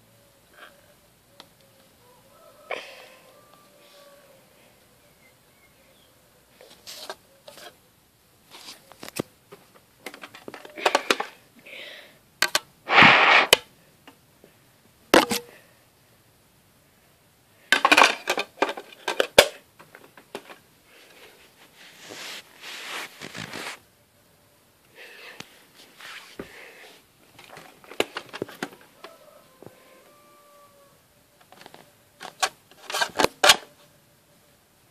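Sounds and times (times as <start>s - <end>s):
rustling scrape: 6.6s - 7.8s, 8.5s - 9.1s, 12.9s - 13.6s, 20.9s - 23.8s, 25.8s - 26.5s, 31.6s - 33.7s
soft rubbing and brushing: 8.5s - 9.1s, 21.0s - 23.8s, 25.5s - 27.1s
plastic cd cases clicking: 9.0s - 11.4s, 12.4s - 12.7s, 17.8s - 20.6s, 27.3s - 29.1s, 31.4s - 33.7s.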